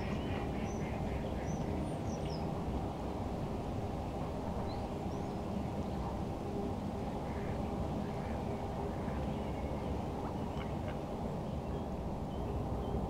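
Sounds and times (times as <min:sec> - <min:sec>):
faint ragged bird calls: 0:00.0 - 0:02.5, 0:07.2 - 0:13.0.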